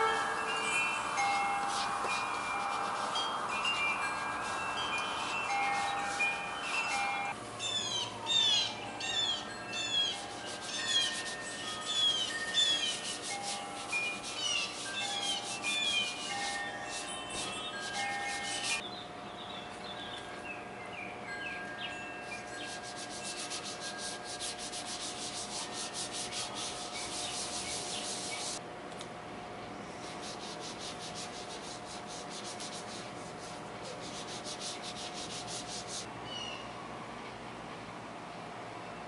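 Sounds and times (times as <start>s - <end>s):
hands rubbing over tape: 1.6s - 7.0s, 10.2s - 18.8s, 22.6s - 28.6s, 30.0s - 36.1s.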